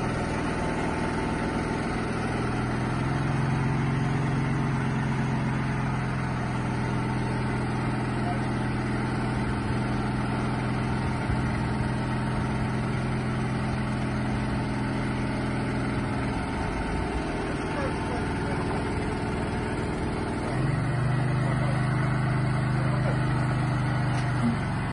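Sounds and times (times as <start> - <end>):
crane engine idling: 0.0 - 24.9.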